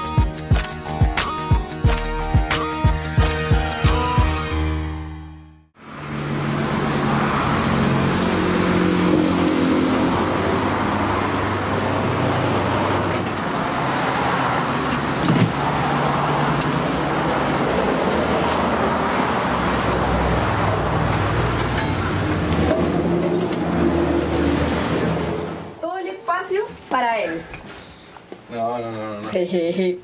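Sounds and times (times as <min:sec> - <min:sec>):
car engine: 0:05.7 - 0:25.8
road traffic: 0:05.7 - 0:28.5.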